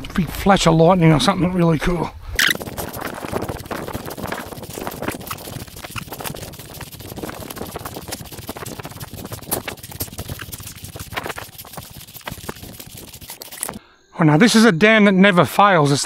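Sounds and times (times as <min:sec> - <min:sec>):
footsteps through wet grass: 0:02.4 - 0:13.8.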